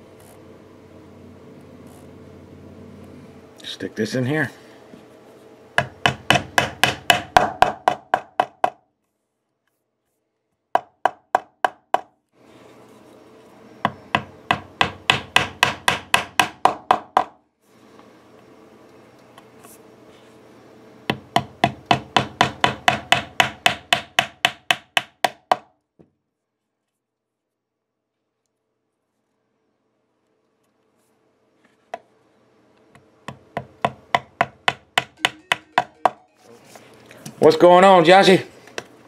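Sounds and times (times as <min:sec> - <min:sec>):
mallet tapping wooden plugs: 0:33.3 - 0:36.2.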